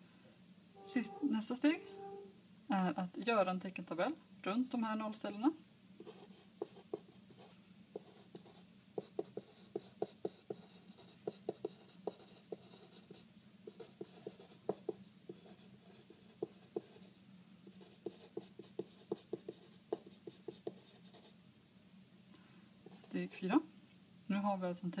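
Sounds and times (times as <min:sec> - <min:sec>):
felt-tip pen writing on paper: 0:06.0 - 0:17.1, 0:17.7 - 0:21.3.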